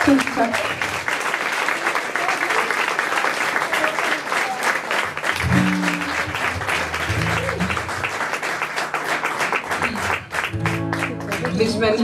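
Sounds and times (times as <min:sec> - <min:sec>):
audience applauding: 0:00.0 - 0:12.0
acoustic guitar strings plucked: 0:05.4 - 0:07.8.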